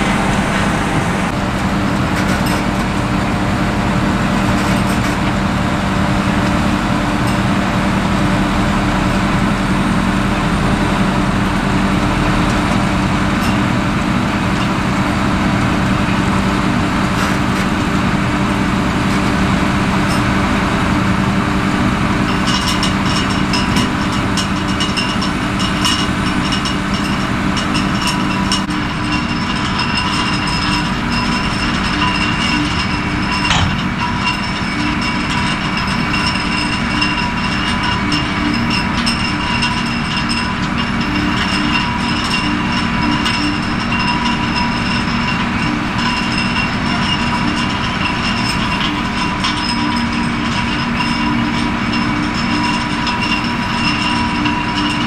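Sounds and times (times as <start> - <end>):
high whine: 0.0 - 3.3, 28.7 - 41.0
harvesting machinery engine hum: 0.0 - 55.0.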